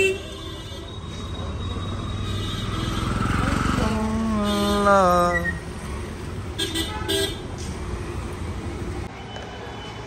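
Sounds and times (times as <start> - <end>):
car horn sounding: 6.6 - 7.4.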